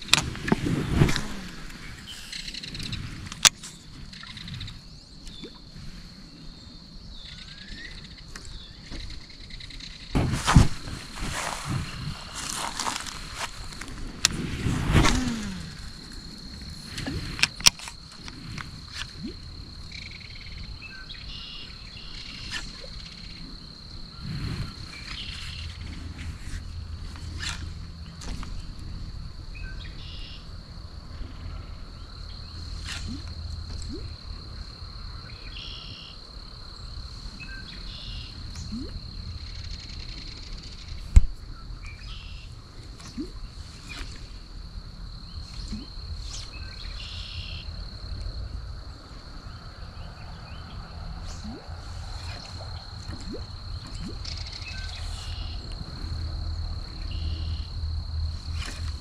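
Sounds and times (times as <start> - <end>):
insects trilling: 0.0 - 59.0
low outdoor rumble: 23.0 - 35.4, 42.5 - 59.0.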